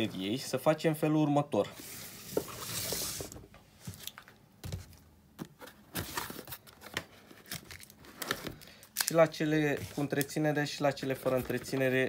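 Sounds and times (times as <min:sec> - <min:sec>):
cardboard box sliding open: 0:01.8 - 0:03.4.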